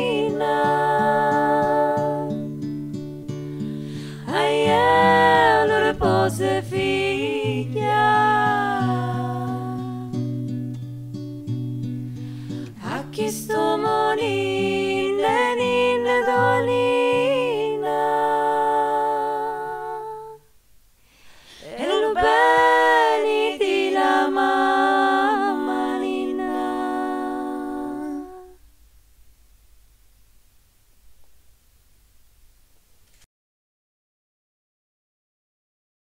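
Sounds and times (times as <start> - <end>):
person singing long notes: 4.2 - 10.2, 12.8 - 20.4, 21.6 - 28.6.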